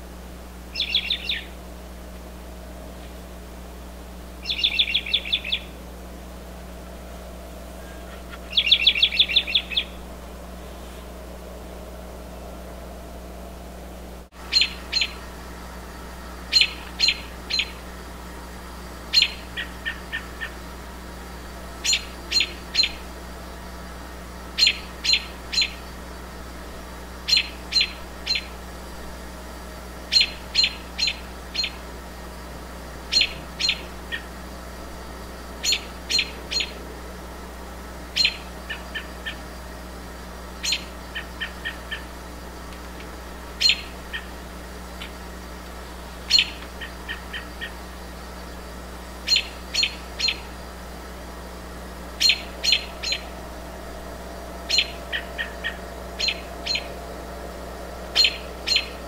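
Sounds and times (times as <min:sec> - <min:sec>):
bird calling short sharp notes: 0:14.5 - 0:15.2, 0:58.2 - 0:59.0.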